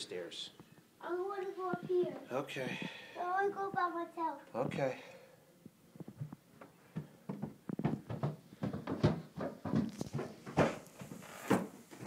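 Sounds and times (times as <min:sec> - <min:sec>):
footsteps on carpeted stairs: 0:06.0 - 0:12.0.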